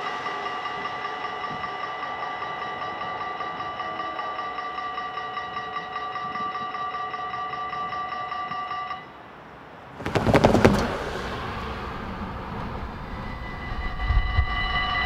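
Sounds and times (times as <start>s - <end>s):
steady low rush: 0.0s - 6.2s, 9.3s - 15.0s
level crossing bell ringing: 0.0s - 9.2s
loud clattering burst: 10.0s - 12.1s.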